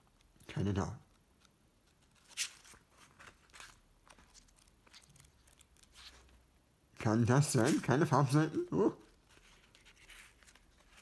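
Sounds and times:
paper pages flicking: 0:01.1 - 0:06.4.

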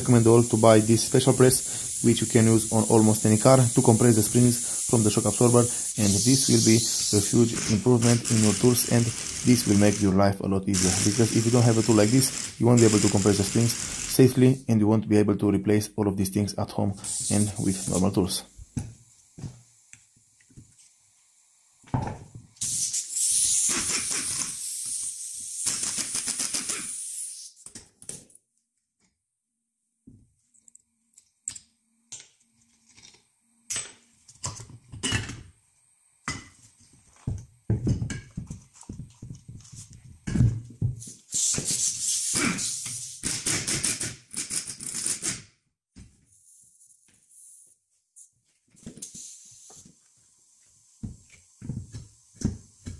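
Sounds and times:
loud fluttering hiss: 0:00.0 - 0:14.3, 0:17.1 - 0:18.1, 0:22.6 - 0:27.6, 0:41.1 - 0:44.0
knock: 0:21.9 - 0:22.3.

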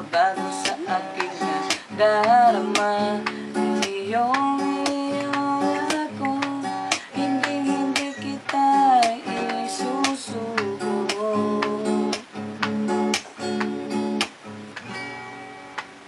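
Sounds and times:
man singing: 0:00.0 - 0:12.2
acoustic guitar strumming: 0:00.0 - 0:16.0.

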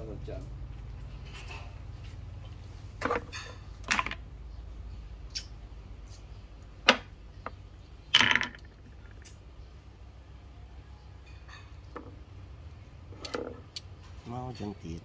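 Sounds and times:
wooden pieces clacking on board: 0:03.0 - 0:04.2, 0:06.8 - 0:09.4
pieces clattering: 0:08.1 - 0:09.4.

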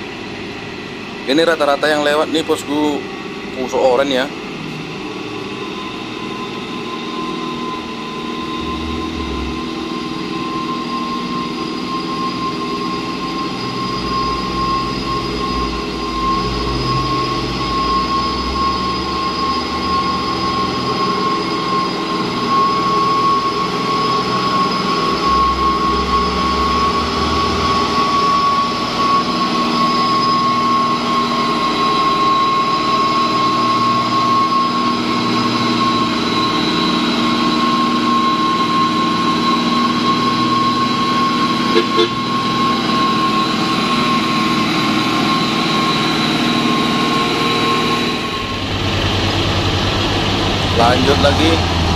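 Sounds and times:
high whine: 0:00.0 - 0:51.9
truck diesel engine climbing: 0:07.6 - 0:10.6, 0:40.2 - 0:51.9.

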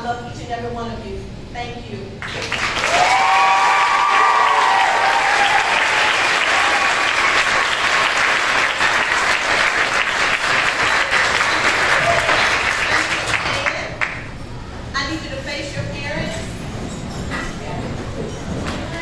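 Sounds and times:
large audience applauding: 0:02.2 - 0:14.3.

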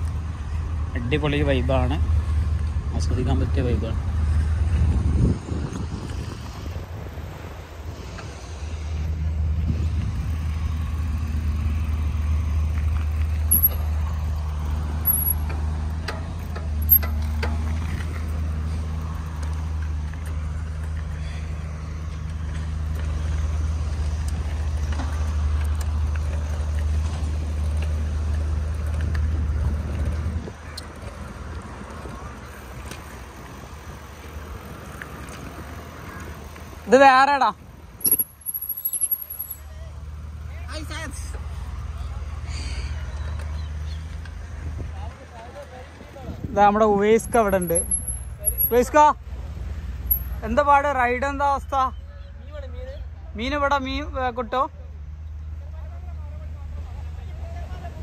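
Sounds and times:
bike tyres rolling on asphalt: 0:00.0 - 0:51.4
wind rumble on microphone: 0:03.9 - 0:12.8, 0:28.4 - 0:32.4, 0:45.8 - 0:47.6.

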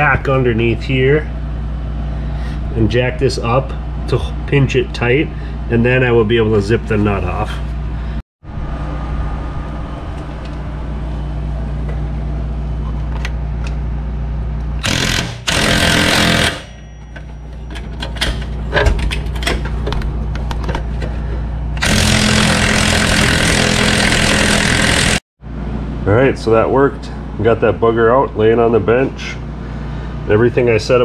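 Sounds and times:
steady hum: 0:00.0 - 0:31.0
impact wrench hammering: 0:14.8 - 0:20.0, 0:21.8 - 0:25.2.

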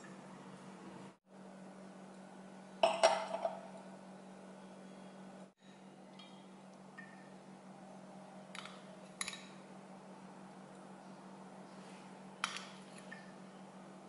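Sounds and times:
faint steady hum: 0:00.0 - 0:14.0
glass clinking on stone countertop: 0:02.8 - 0:03.7.

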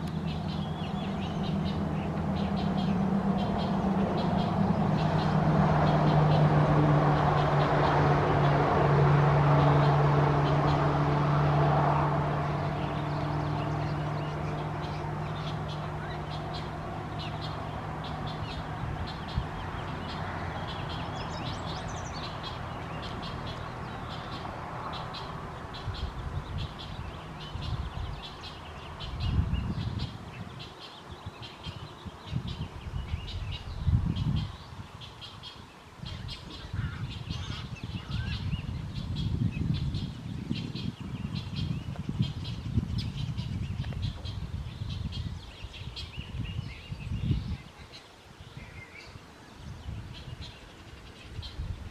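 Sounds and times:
wind gusts on microphone: 0:00.0 - 0:51.9
nestlings giving high calls: 0:12.7 - 0:48.0.

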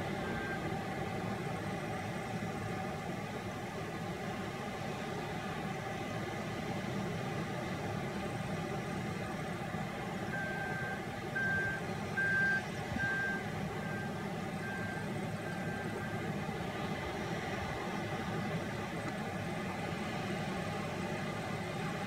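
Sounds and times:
diesel engine running: 0:00.0 - 0:22.0
reversing alarm beeping: 0:00.2 - 0:00.7, 0:10.3 - 0:16.3.

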